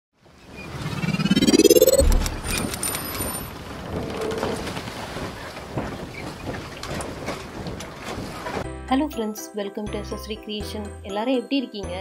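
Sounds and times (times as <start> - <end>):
steady rushing noise: 0.6 - 3.0.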